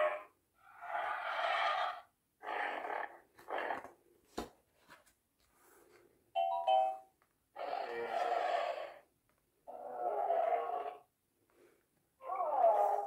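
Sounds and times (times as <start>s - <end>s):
rough animal-like creature sounds: 0.0s - 4.0s, 7.6s - 11.1s.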